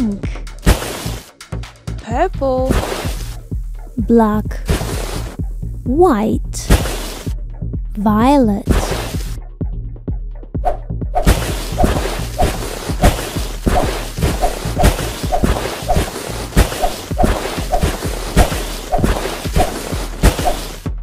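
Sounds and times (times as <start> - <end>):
upbeat backing music: 0.0 - 21.0
crashing and crumbling sand: 11.2 - 20.8.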